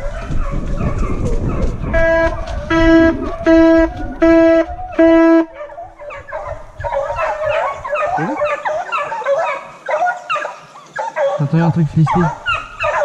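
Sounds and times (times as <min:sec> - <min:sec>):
hounds baying and yelping: 0:00.0 - 0:13.0
hunting horn blasts: 0:01.9 - 0:05.6.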